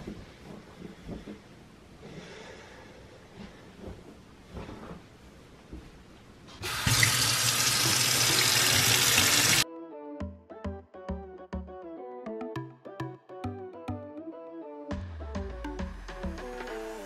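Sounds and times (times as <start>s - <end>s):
water running into steel sink: 6.6s - 9.6s.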